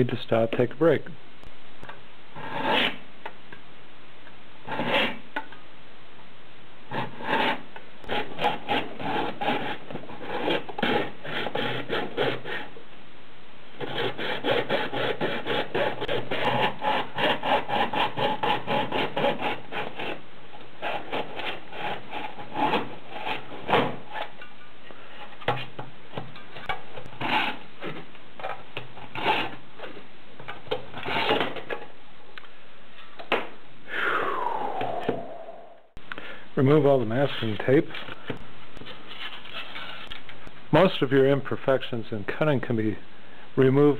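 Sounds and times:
hand saw cutting plastic: 4.7s - 5.2s, 6.9s - 12.7s, 13.8s - 20.2s, 20.8s - 24.3s, 27.2s - 27.6s, 29.1s - 29.6s, 30.9s - 31.8s.

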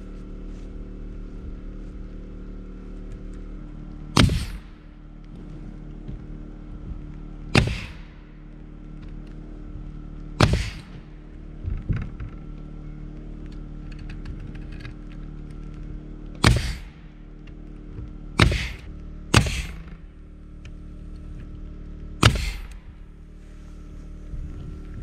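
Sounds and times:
nail gun shots: 4.2s - 4.7s, 7.5s - 8.2s, 10.4s - 11.0s, 16.4s - 17.0s, 18.4s - 20.0s, 22.2s - 22.8s.

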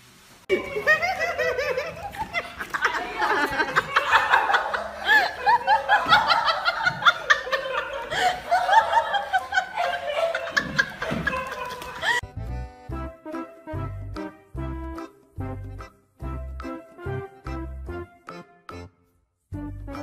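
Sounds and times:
people laughing: 0.5s - 12.2s.

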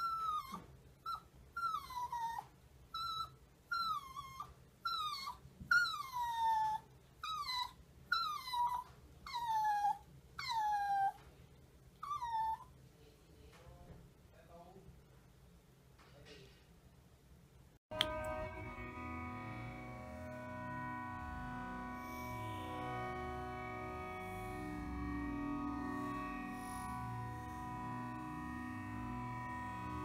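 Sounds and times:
dog whining: 0.0s - 11.3s, 12.0s - 12.8s.

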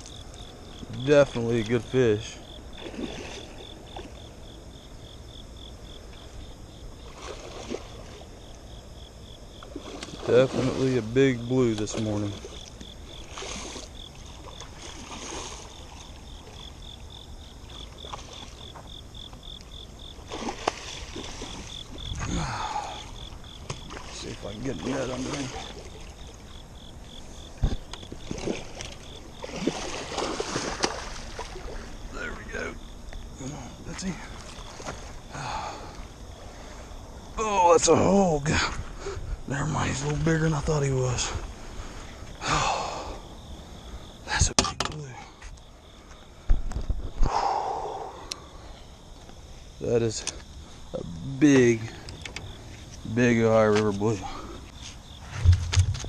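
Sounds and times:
insect chirping: 0.0s - 56.0s
low outdoor background noise: 0.0s - 56.0s
fish thrashing and splashing: 2.7s - 4.2s, 11.9s - 16.0s, 20.2s - 22.4s, 23.6s - 26.4s, 28.2s - 31.9s
sharp knocks: 55.4s - 56.0s.

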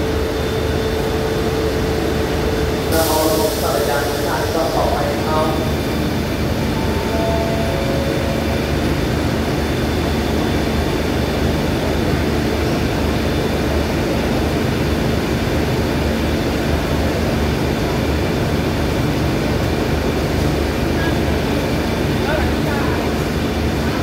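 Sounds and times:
faint high whine: 0.0s - 10.6s
diesel train engine drone: 0.0s - 24.0s.

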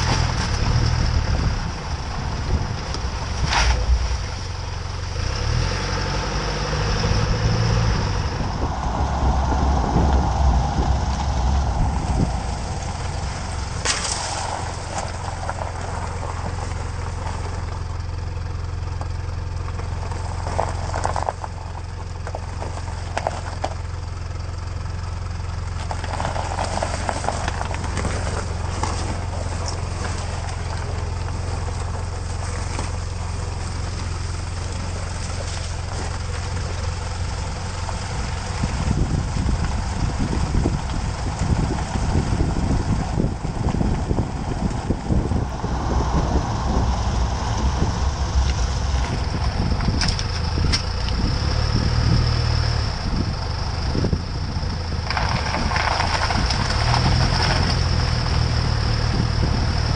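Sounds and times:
car engine humming: 0.0s - 59.9s
tyres crunching over snow: 0.0s - 59.9s.

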